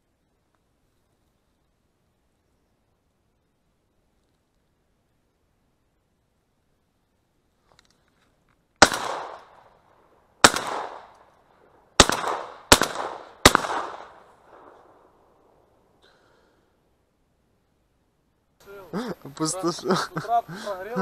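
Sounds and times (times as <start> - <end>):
shotgun shots echoing: 8.8 - 9.7, 10.4 - 11.3, 12.0 - 15.6.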